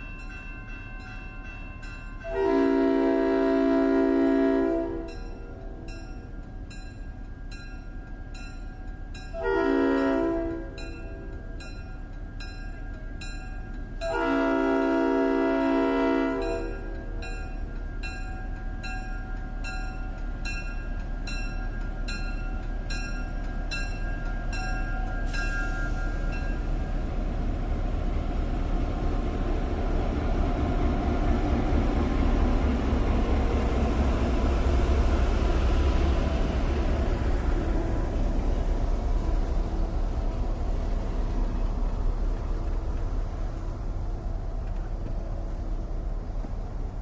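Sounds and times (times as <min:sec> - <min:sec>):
railroad warning bell ringing: 0:00.0 - 0:27.5
train rumbling: 0:00.0 - 0:47.0.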